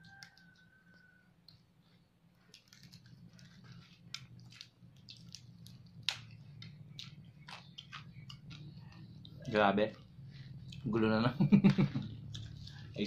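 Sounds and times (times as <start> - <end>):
crispy pork skin crackling: 2.3 - 10.0.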